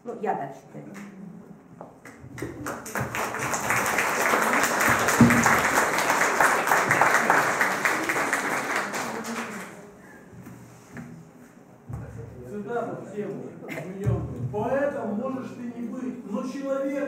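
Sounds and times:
audience applauding: 2.4 - 9.9.

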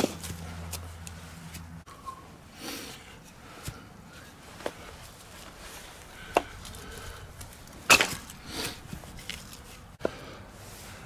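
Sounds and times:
wood splitting crack: 6.2 - 9.6
hatchet chopping wood: 7.9 - 8.4.

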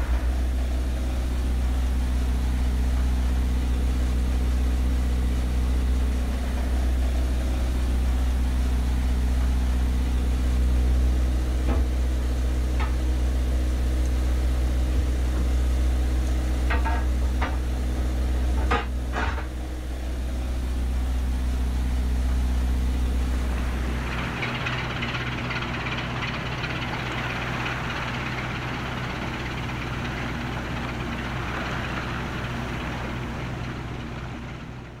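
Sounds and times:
diesel engine rumbling: 0.0 - 35.0.

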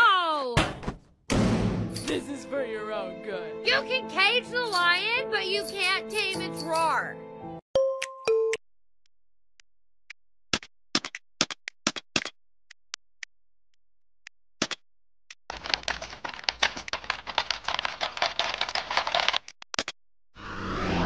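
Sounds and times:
fast typing on keyboard: 15.5 - 19.5
rising rushing noise: 20.4 - 21.0.

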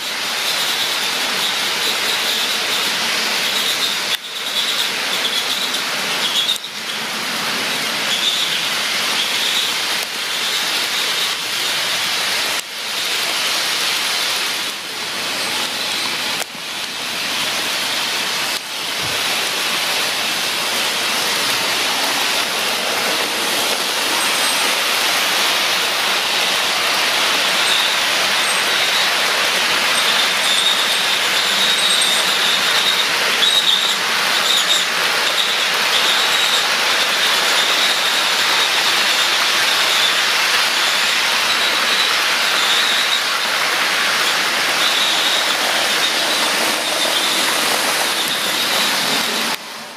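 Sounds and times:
faint high wheel squeal: 0.0 - 7.1, 7.7 - 11.4, 24.1 - 25.0, 27.3 - 49.6
model train wheels rattling on rails: 0.0 - 49.9.

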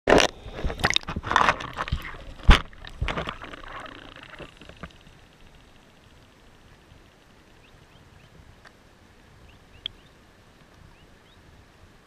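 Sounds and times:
water splashing and sloshing: 0.2 - 5.2.

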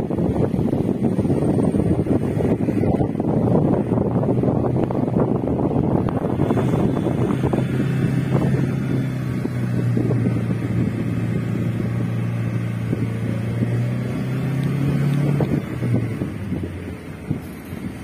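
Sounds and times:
car engine humming: 0.0 - 18.0
road and wind noise: 0.0 - 18.0.

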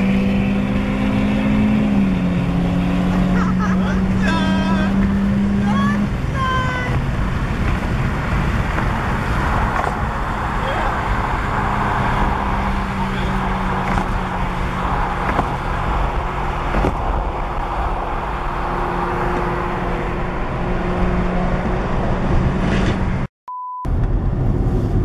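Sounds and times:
engine humming: 0.0 - 23.3
road and wind noise in car: 0.0 - 25.0
short beep: 23.5 - 23.9.

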